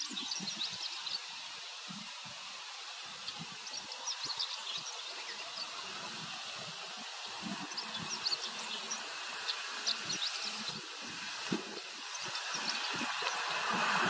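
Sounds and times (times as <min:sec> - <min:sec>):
steady outdoor hiss: 0:00.0 - 0:14.0.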